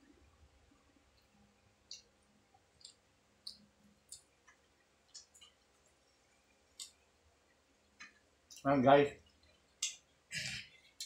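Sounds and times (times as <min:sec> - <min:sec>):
wet mouth clicks and smacks: 0:01.2 - 0:02.1, 0:02.8 - 0:05.7, 0:06.7 - 0:07.0, 0:09.3 - 0:10.1.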